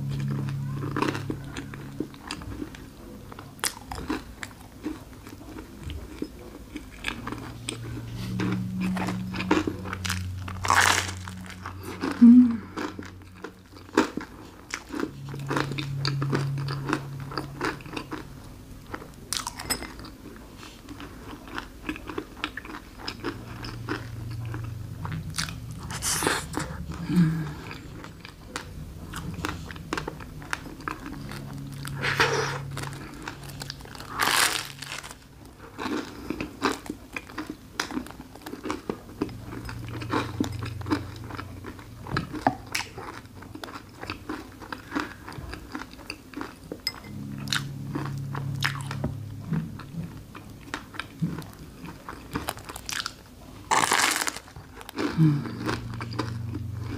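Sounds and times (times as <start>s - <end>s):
chewing mouth sounds: 0.0s - 56.9s
crisp crunching bites: 6.8s - 12.2s, 29.2s - 46.5s, 50.4s - 56.9s.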